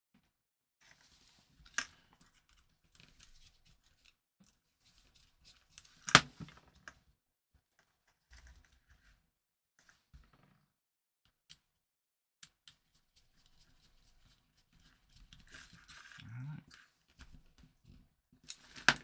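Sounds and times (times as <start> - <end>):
wires and plastic board rustling: 12.7 - 19.0.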